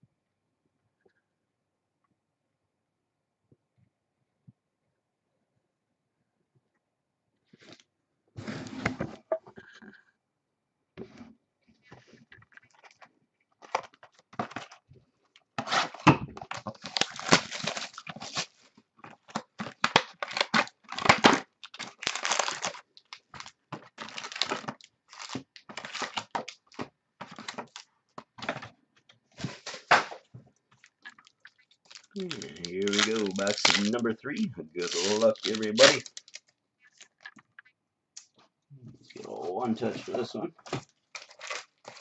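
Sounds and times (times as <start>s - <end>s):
packaging crinkling and tearing: 12.5s - 14.9s, 15.6s - 28.7s, 29.4s - 37.7s, 40.6s - 42.0s.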